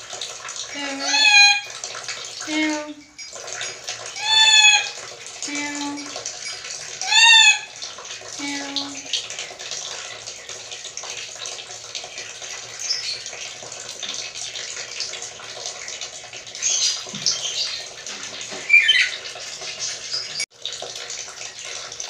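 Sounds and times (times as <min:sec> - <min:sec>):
parrot squeaky calls: 0:01.0 - 0:01.7, 0:04.2 - 0:05.0, 0:06.4 - 0:07.7, 0:18.6 - 0:19.3.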